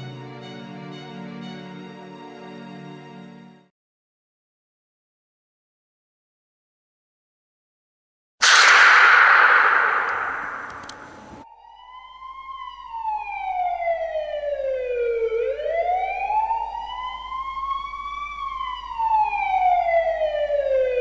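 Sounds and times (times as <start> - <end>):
emergency siren wailing: 10.3 - 21.0.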